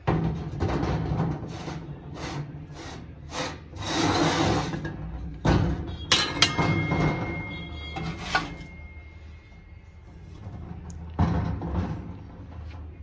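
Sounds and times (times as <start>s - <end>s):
sharp metallic clinks: 5.9s - 9.8s
brass ringing high tone: 6.0s - 9.8s.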